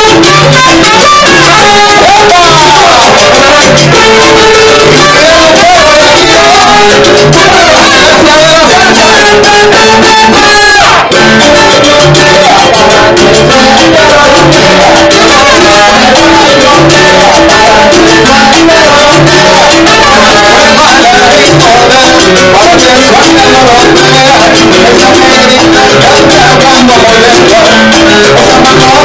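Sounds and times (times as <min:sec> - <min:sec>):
salsa band playing: 0:00.0 - 0:29.0.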